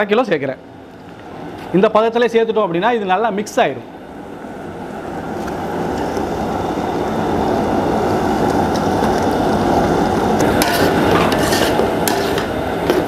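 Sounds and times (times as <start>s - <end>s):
steady rushing noise: 3.6s - 13.0s
metal ladle scraping a pot: 10.4s - 13.0s.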